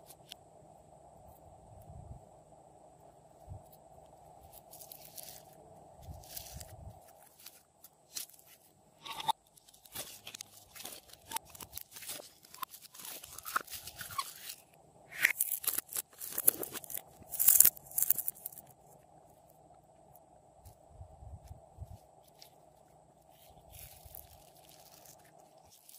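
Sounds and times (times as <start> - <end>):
plastic bottle crinkling: 9.2 - 14.6, 15.2 - 18.6.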